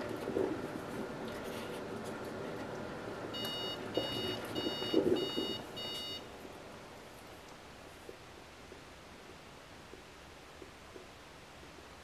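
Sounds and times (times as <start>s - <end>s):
coffee machine short electronic beeps: 3.4s - 6.2s.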